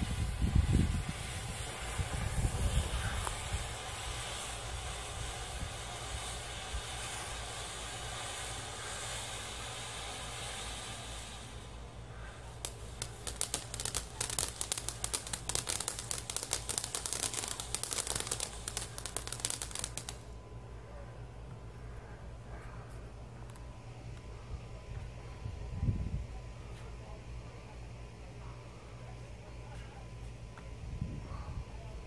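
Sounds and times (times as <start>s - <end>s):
firework crackling: 0.0s - 20.4s
firework fountain hissing: 0.0s - 20.4s.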